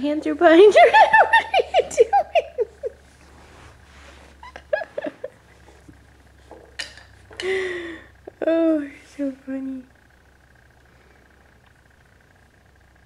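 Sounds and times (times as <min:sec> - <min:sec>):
high-pitched laughter: 0:00.7 - 0:03.0, 0:04.4 - 0:05.4.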